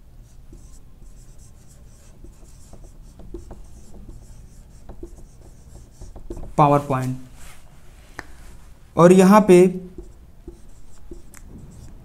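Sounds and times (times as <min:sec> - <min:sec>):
marker scratching on whiteboard: 0:00.2 - 0:07.3, 0:09.7 - 0:12.0.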